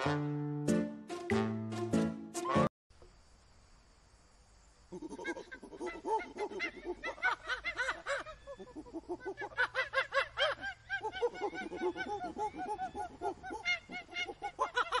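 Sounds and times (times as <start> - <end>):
rapid cackling laugh-like calls: 4.9 - 15.0.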